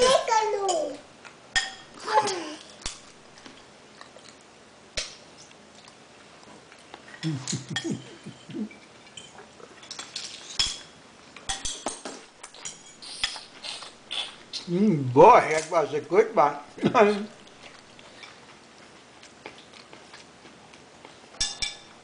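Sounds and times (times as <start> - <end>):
metal cutlery clinking on dishes: 7.2 - 10.9, 11.5 - 13.4, 21.4 - 22.0.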